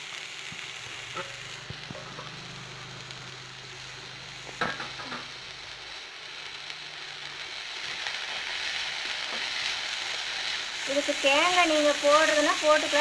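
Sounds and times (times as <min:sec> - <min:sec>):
meat and onions sizzling in oil: 0:00.0 - 0:13.0.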